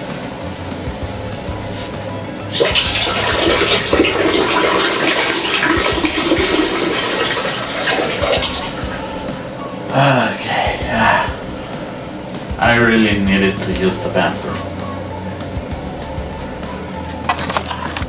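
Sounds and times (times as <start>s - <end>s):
toilet flushing: 2.5s - 9.3s.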